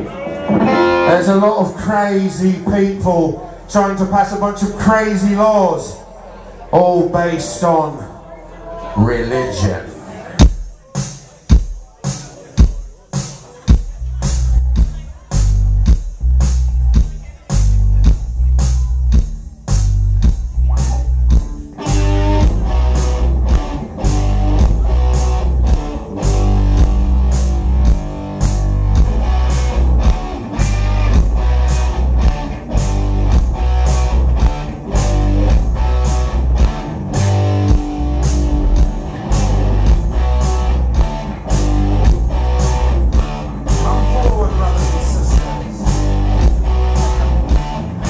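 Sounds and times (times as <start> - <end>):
guitars: 0.0 - 2.7, 19.7 - 48.0
heavy bass line: 0.4 - 2.1, 13.7 - 48.0
steady drum beat: 10.4 - 48.0.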